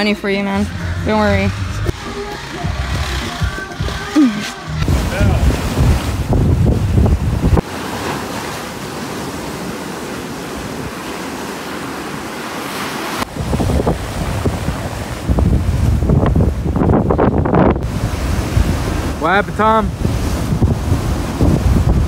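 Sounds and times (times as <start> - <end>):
surf washing over rocks: 3.3 - 22.0
wind buffeting microphone: 4.8 - 7.7, 13.2 - 22.0.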